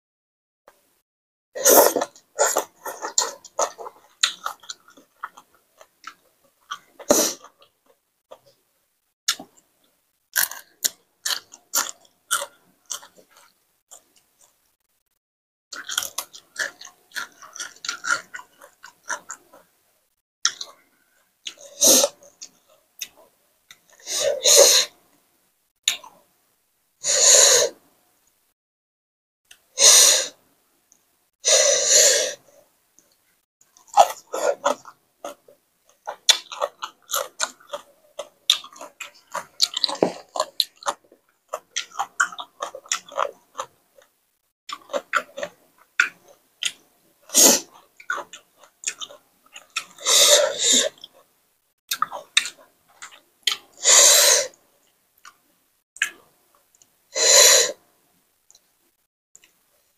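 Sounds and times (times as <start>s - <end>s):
crisp chewing and crunching: 1.9s - 8.6s, 10.3s - 14.8s, 15.7s - 19.7s, 33.0s - 46.9s, 47.6s - 50.0s, 51.9s - 53.7s
sharp noisy breaths: 50.0s - 51.0s, 53.8s - 54.6s.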